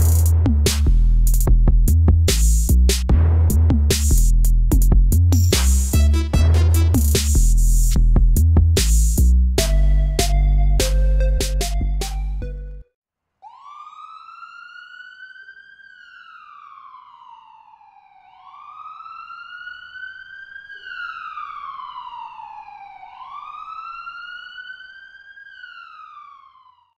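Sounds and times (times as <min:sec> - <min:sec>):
background music: 0:05.1 - 0:07.9, 0:08.8 - 0:12.8
emergency vehicle siren wailing: 0:13.4 - 0:27.0.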